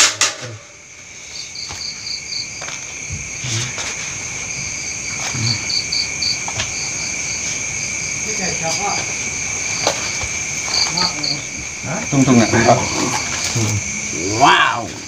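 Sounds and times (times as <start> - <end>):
crickets chirping: 0.0 - 15.0
insects trilling: 0.0 - 15.0.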